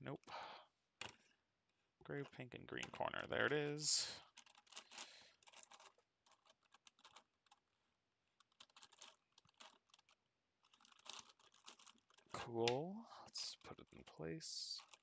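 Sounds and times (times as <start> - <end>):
plastic puzzle clicking: 4.3 - 7.6, 8.4 - 12.8, 14.8 - 15.0.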